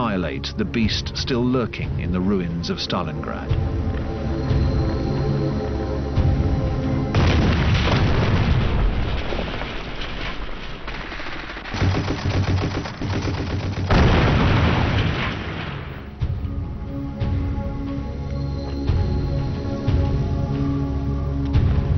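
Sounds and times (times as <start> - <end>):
background music: 0.0 - 9.2, 11.8 - 21.9
explosion booms: 7.1 - 11.0, 13.9 - 16.2
rapid machine-gun fire: 10.9 - 15.0.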